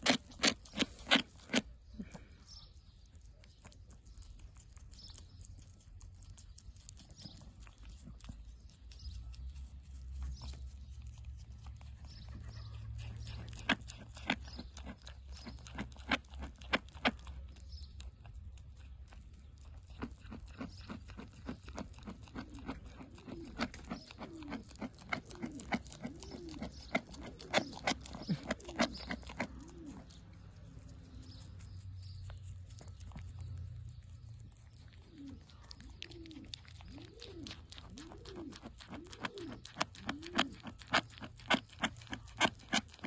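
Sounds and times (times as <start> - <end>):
goat chewing apple: 0.0 - 43.0.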